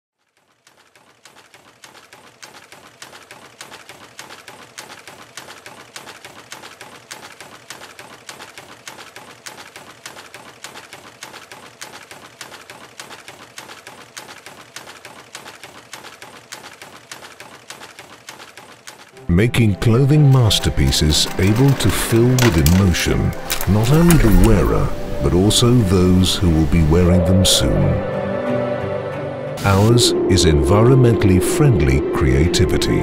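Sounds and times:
weaving loom clattering: 0:00.2 - 0:19.2, 0:19.9 - 0:25.8.

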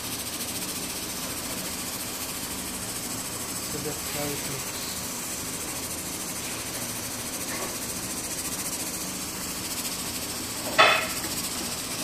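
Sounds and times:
pot simmering with hiss: 0:00.0 - 0:12.0
spatula knocking against pan: 0:10.7 - 0:11.2.

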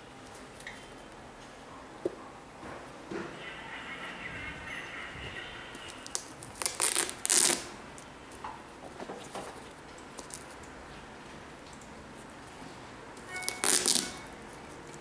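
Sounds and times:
velcro strap ripping: 0:06.0 - 0:07.8, 0:13.4 - 0:14.9
handling rustles and clicks: 0:07.4 - 0:10.8.

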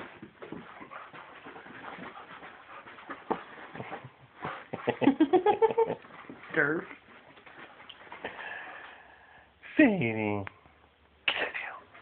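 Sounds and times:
paws scuffling on carpet: 0:00.0 - 0:08.4.

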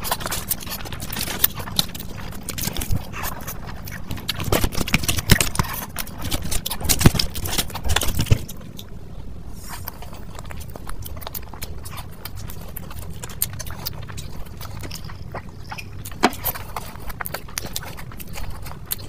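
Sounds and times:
wet chewing of noodles: 0:00.0 - 0:19.0
mouth clicks and smacks: 0:09.9 - 0:19.0.

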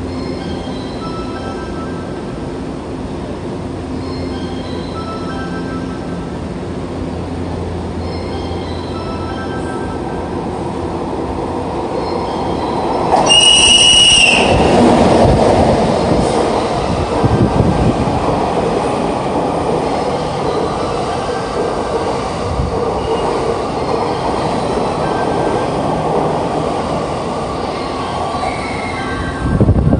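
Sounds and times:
train wheels rumbling on rails: 0:00.0 - 0:29.9
locomotive whistle: 0:13.2 - 0:14.8.

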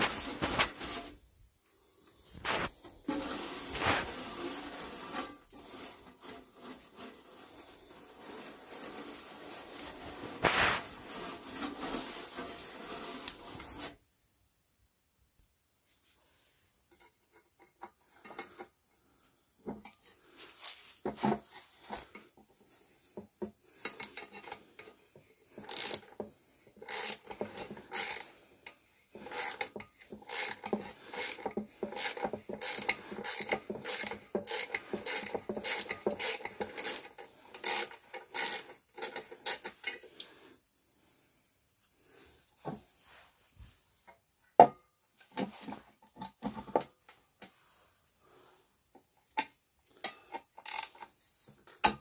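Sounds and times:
wire brush scrubbing metal: 0:00.0 - 0:01.2, 0:02.4 - 0:13.9, 0:23.8 - 0:40.3.

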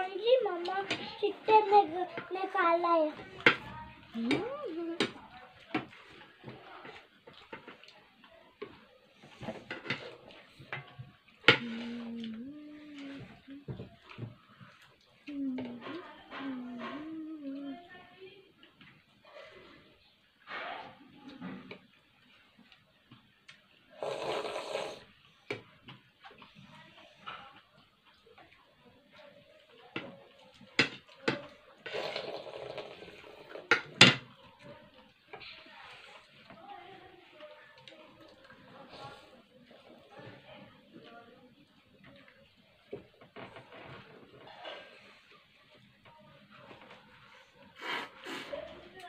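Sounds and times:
slurping soup: 0:23.9 - 0:25.2, 0:31.8 - 0:33.7, 0:47.7 - 0:48.6.

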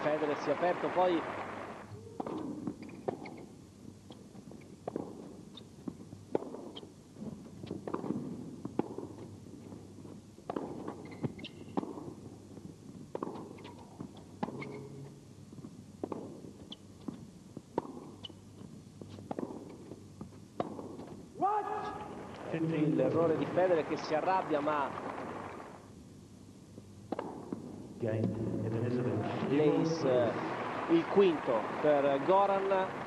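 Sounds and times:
low arena background noise: 0:00.0 - 0:33.0
racket striking tennis ball: 0:02.2 - 0:03.6, 0:04.2 - 0:09.8, 0:10.4 - 0:15.0, 0:16.0 - 0:18.4, 0:19.1 - 0:22.0, 0:27.0 - 0:27.9
tennis ball bouncing: 0:02.2 - 0:21.4, 0:27.0 - 0:28.4.

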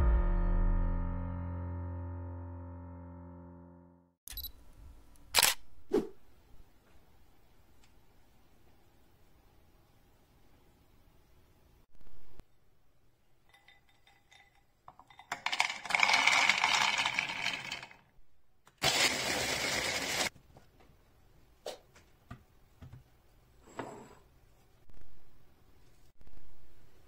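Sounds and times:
nuts rattling into plastic bowl: 0:13.6 - 0:18.0.

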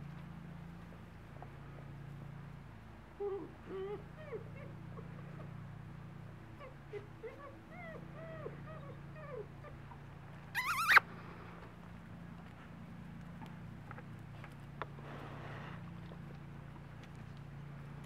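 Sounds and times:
puppy whimpering: 0:03.2 - 0:04.8, 0:06.6 - 0:10.0, 0:10.6 - 0:11.0
puppy yelping: 0:10.6 - 0:11.0.

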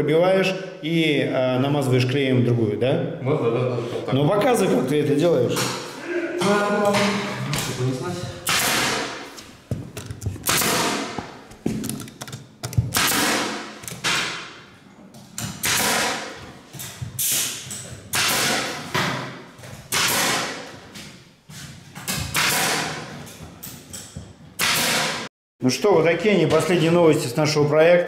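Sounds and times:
pneumatic nailer firing: 0:08.4 - 0:09.3, 0:10.4 - 0:11.4, 0:12.8 - 0:14.6, 0:15.4 - 0:16.4, 0:17.2 - 0:19.3, 0:19.9 - 0:20.8, 0:22.0 - 0:23.2, 0:24.6 - 0:25.3.

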